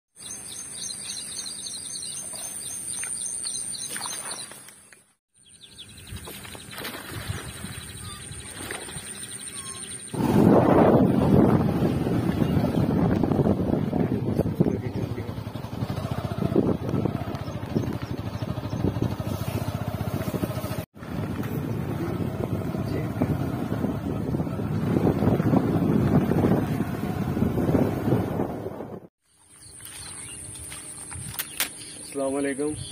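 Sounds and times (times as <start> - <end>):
birds chirping: 0.2 - 20.8, 21.4 - 28.3, 29.2 - 32.9
small vehicle engine running: 10.1 - 28.9.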